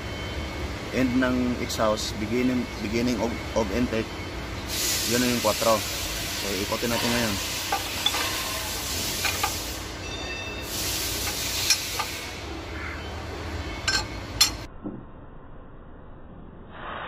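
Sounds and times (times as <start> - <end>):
steady hiss: 4.6 - 10.0, 10.6 - 12.4.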